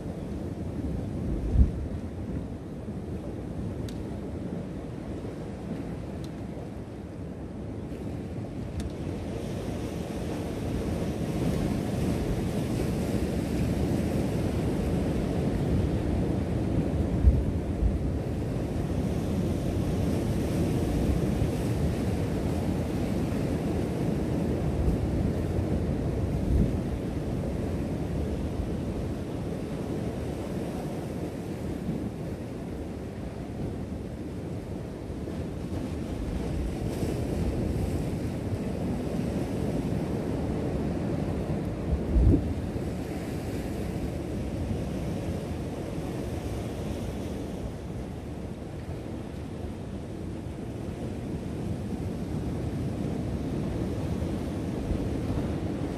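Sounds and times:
wind rumbling on microphone: 0:00.0 - 0:55.9
wind buffeting microphone: 0:35.5 - 0:45.3.

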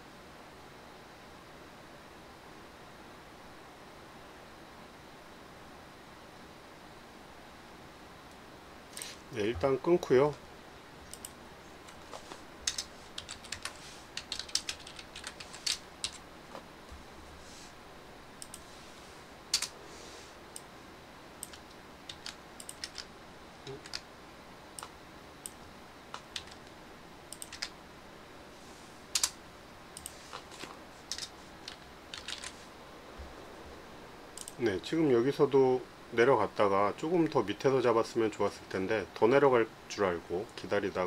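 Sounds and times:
computer keyboard and mouse clicks: 0:11.1 - 0:16.6, 0:19.5 - 0:19.7, 0:21.4 - 0:24.0, 0:24.8 - 0:26.7, 0:27.3 - 0:27.8, 0:29.2 - 0:29.4, 0:30.0 - 0:32.6.

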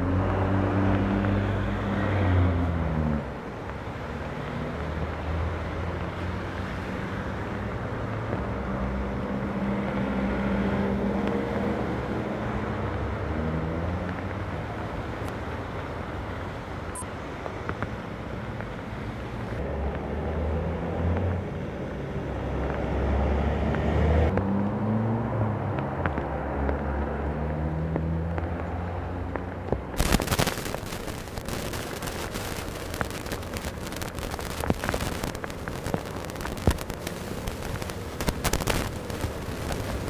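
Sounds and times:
road traffic rumble: 0:00.0 - 0:40.0
rain falling hard: 0:30.0 - 0:40.0.

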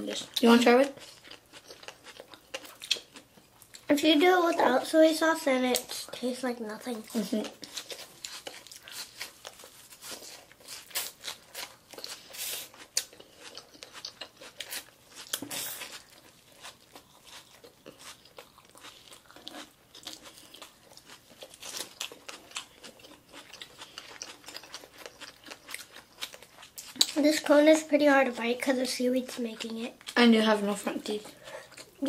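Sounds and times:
crisp chewing crunches: 0:00.2 - 0:03.9, 0:07.0 - 0:27.4.

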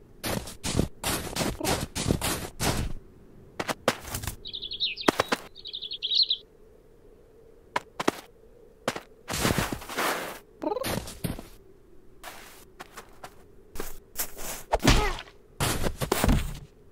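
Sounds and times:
paws scrabbling in snow: 0:00.2 - 0:03.0, 0:03.6 - 0:05.6, 0:07.8 - 0:11.6, 0:12.2 - 0:16.8
wings fluttering: 0:00.2 - 0:03.0, 0:03.6 - 0:06.4, 0:07.7 - 0:11.6
small bird twittering: 0:04.3 - 0:06.5.

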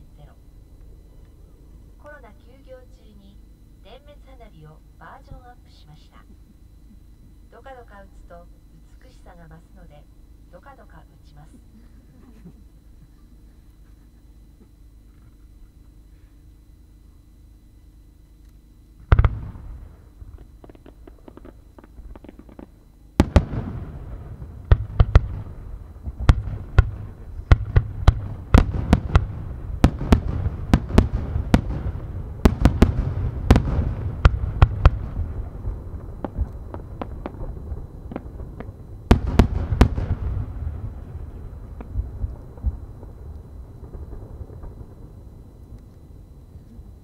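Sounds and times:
firework boom: 0:19.0 - 0:45.6
firework crackling: 0:19.0 - 0:45.7.

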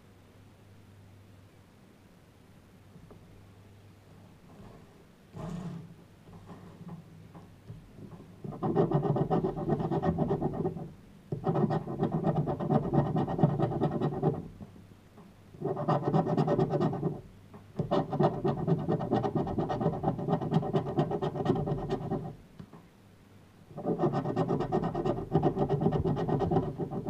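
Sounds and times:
scraper scratching lottery ticket: 0:08.5 - 0:14.5, 0:15.6 - 0:17.2, 0:17.8 - 0:22.4, 0:23.8 - 0:27.0.

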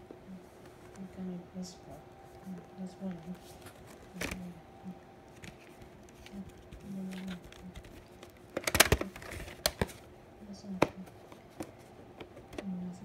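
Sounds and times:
plastic case clicking and rattling: 0:05.4 - 0:10.0.

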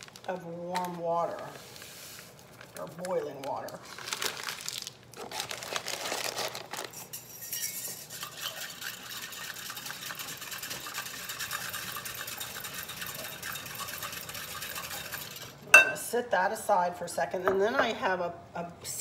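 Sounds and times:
utensil clinking in glass bowl: 0:06.9 - 0:16.0.

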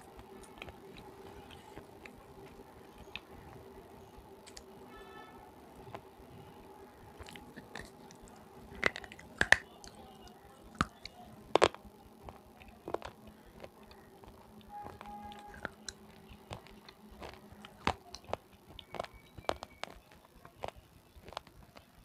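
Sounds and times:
crunchy chewing: 0:00.0 - 0:22.0
sharp cracks: 0:07.2 - 0:10.0.

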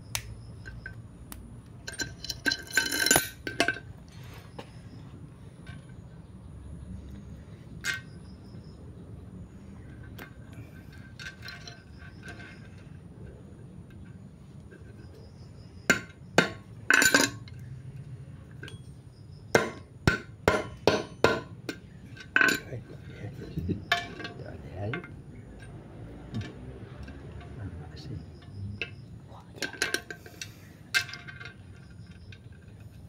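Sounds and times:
chain links clinking: 0:01.8 - 0:03.9, 0:09.9 - 0:13.0, 0:16.9 - 0:17.6
hammer striking metal chain: 0:19.5 - 0:21.5.

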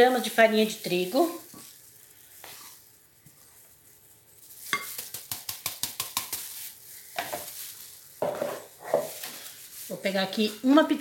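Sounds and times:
flour sliding: 0:00.0 - 0:10.8
sharp taps on bowl: 0:04.8 - 0:06.5.

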